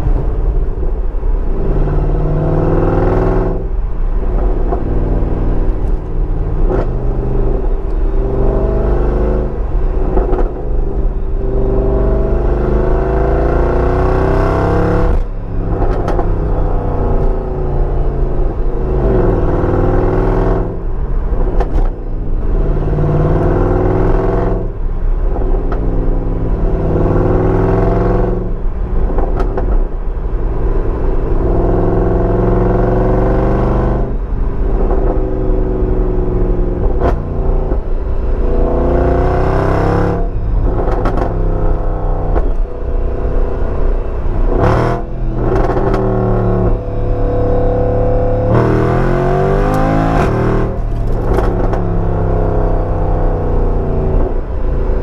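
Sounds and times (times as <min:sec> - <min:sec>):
car engine revving: 0:00.0 - 0:55.0
exhaust cracks: 0:50.1 - 0:53.2.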